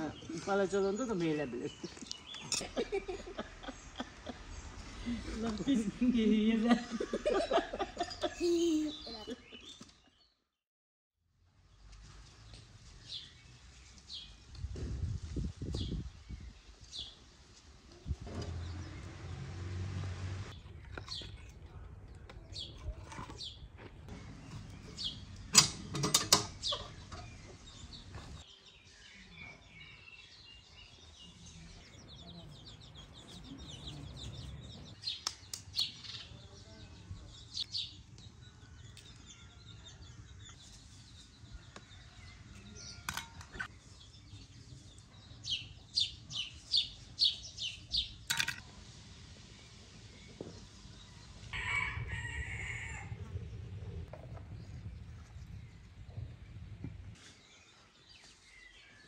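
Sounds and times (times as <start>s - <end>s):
birds calling: 0.0s - 10.4s, 18.0s - 48.6s
wood stove door clanks: 25.5s - 27.0s
eggs cracked over metal bowl: 48.3s - 48.6s.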